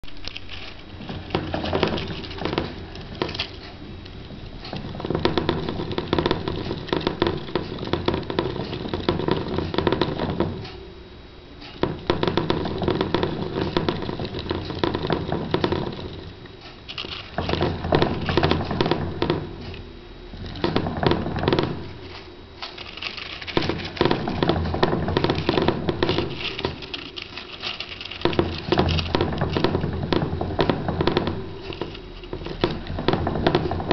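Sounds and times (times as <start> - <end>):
hamster wheel rattling whir: 0.0 - 10.8, 11.6 - 19.8, 20.4 - 33.9.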